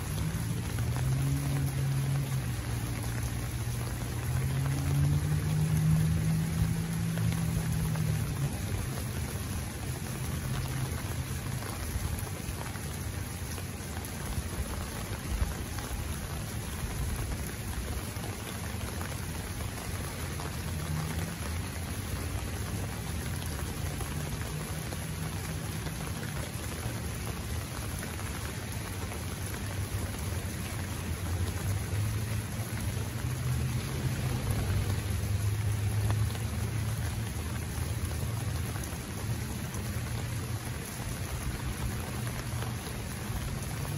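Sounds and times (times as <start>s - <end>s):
rain pattering on an umbrella: 0.0s - 43.9s
low rumble: 32.4s - 37.3s.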